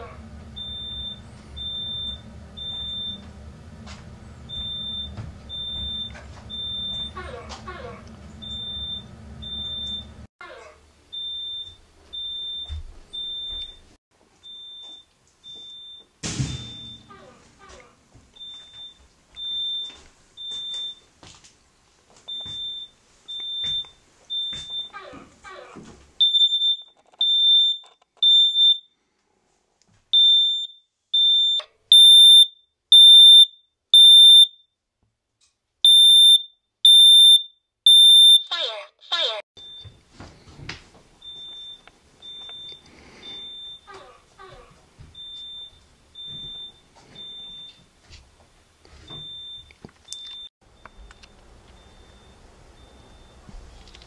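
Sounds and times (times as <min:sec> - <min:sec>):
smoke alarm beeping: 0:00.6 - 0:03.3, 0:04.5 - 0:07.2, 0:08.4 - 0:10.2, 0:11.1 - 0:17.2, 0:18.4 - 0:21.1, 0:22.3 - 0:25.0, 0:26.2 - 0:29.0, 0:30.1 - 0:34.7, 0:35.8 - 0:38.7, 0:39.6 - 0:40.0, 0:41.2 - 0:44.0, 0:45.1 - 0:47.9, 0:49.1 - 0:53.5
fridge door thud: 0:16.2 - 0:17.0.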